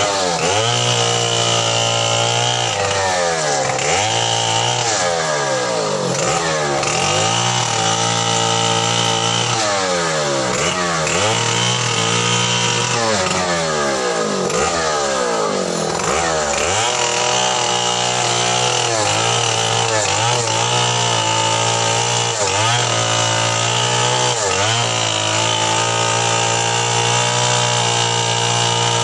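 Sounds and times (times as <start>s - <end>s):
chainsaw cutting wood: 0.0s - 29.0s.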